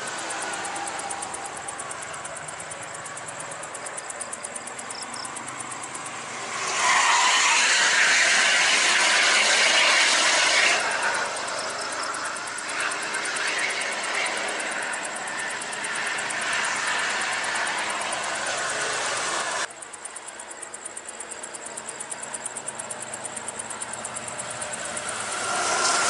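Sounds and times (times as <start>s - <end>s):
traffic tyres and engines hissing: 0.0s - 26.0s
loud whooshing rush: 5.8s - 19.7s.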